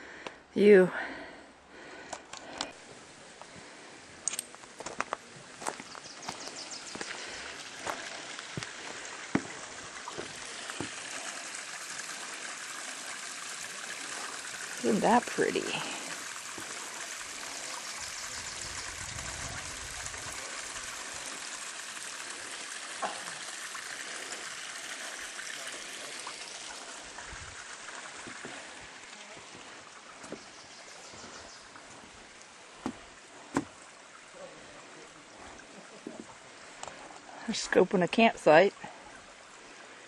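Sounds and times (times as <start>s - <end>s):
creek trickling and splashing: 1.7s - 40.0s.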